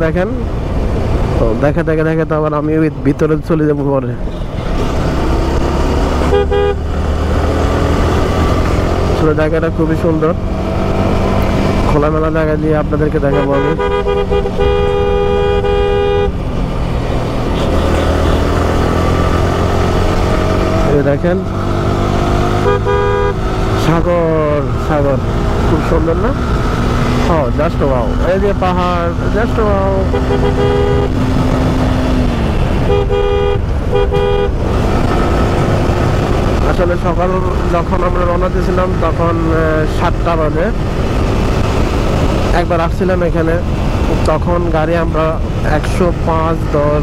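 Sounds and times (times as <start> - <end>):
road noise: 0.0 - 47.0
motorcycle engine: 4.3 - 47.0
two-note vehicle horn blast: 6.3 - 6.8, 13.3 - 16.3, 22.6 - 23.4, 30.1 - 31.2, 32.9 - 34.5
wind rumble: 23.3 - 46.8.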